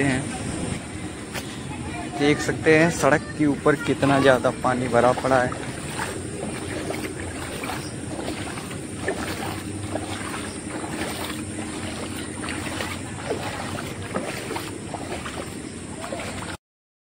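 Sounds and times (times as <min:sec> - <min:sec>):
feet splashing through water: 0:03.5 - 0:16.6.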